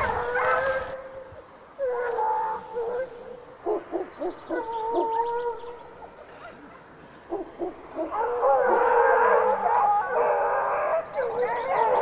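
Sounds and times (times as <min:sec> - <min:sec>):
hound yelps: 0:00.0 - 0:01.0, 0:07.3 - 0:12.0
hounds baying in chorus: 0:00.0 - 0:06.6, 0:07.3 - 0:12.0.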